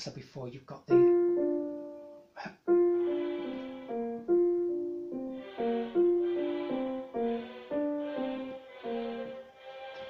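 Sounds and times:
digital piano phrase: 0:00.9 - 0:09.4.

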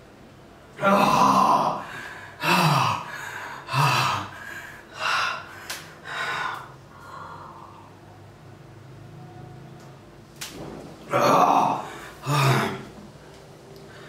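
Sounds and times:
man gasping and exhaling hard: 0:00.9 - 0:07.8, 0:11.7 - 0:12.9.

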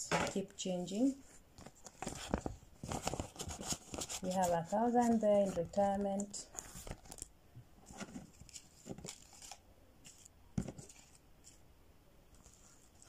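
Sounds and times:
banknotes rustling: 0:00.9 - 0:11.6, 0:12.4 - 0:13.0.

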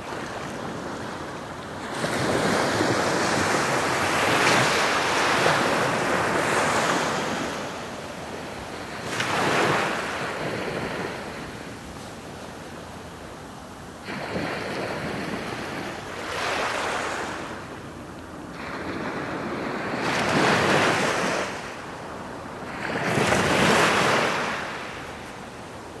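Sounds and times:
small waves breaking on beach: 0:00.0 - 0:26.0.

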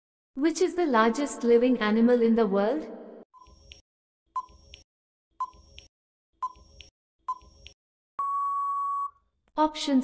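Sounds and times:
long steady beep: 0:08.2 - 0:09.2.

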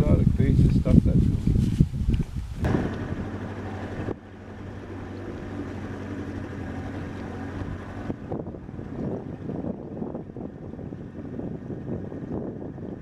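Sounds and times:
wind noise on microphone: 0:00.0 - 0:13.0
outboard motor running: 0:02.6 - 0:13.0.

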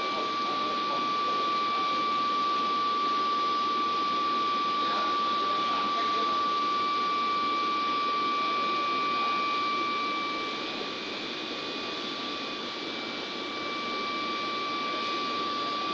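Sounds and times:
high-pitched whine: 0:00.0 - 0:15.9.

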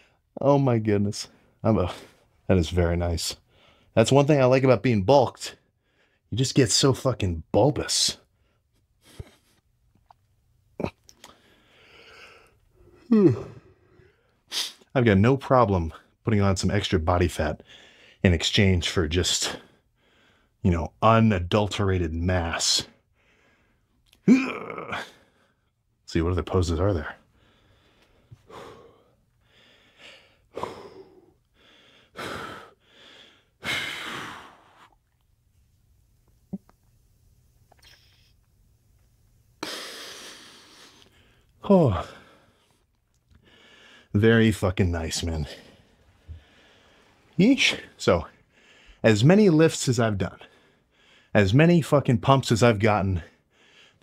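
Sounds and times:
man breathing: 0:00.0 - 0:00.3, 0:03.4 - 0:04.0, 0:05.6 - 0:06.3, 0:11.1 - 0:14.9, 0:17.6 - 0:18.2, 0:19.6 - 0:20.6, 0:23.0 - 0:24.0, 0:27.2 - 0:35.2, 0:39.6 - 0:44.2, 0:45.4 - 0:49.0, 0:50.4 - 0:51.4, 0:53.2 - 0:54.0
man grunting: 0:13.1 - 0:13.7, 0:24.3 - 0:25.2.

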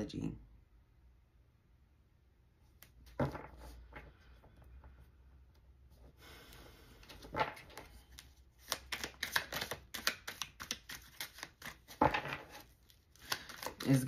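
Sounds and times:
cards sliding rustle: 0:06.4 - 0:14.0.

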